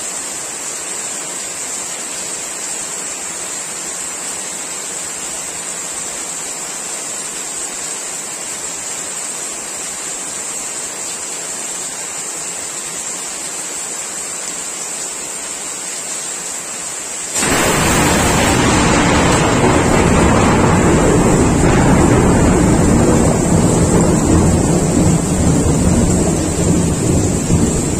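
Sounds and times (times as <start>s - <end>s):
heavy rain on foliage: 0.0s - 27.9s
thunder crack and rumble: 17.4s - 27.9s.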